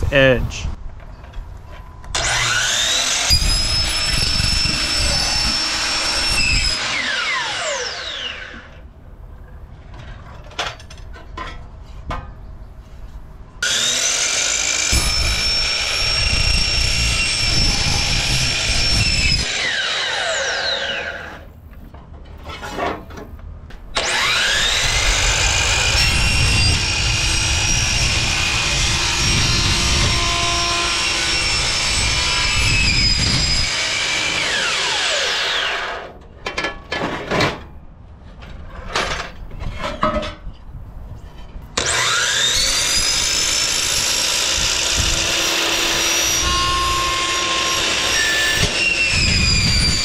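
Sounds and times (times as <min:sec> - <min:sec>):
saw blade winding down: 0:02.2 - 0:08.7, 0:13.6 - 0:21.5, 0:24.0 - 0:36.1, 0:41.8 - 0:50.0
miter saw cutting metal: 0:02.2 - 0:08.8, 0:13.6 - 0:21.5, 0:24.0 - 0:36.2, 0:41.8 - 0:50.0.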